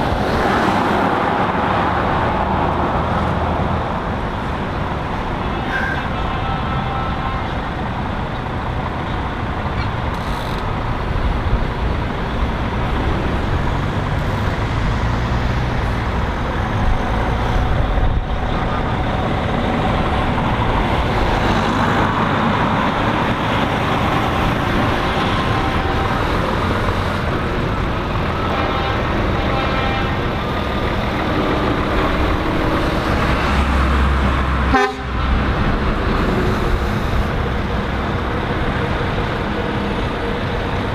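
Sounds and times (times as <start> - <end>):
lorry engines rumbling: 0.0 - 40.9
lorry horns: 34.7 - 35.2.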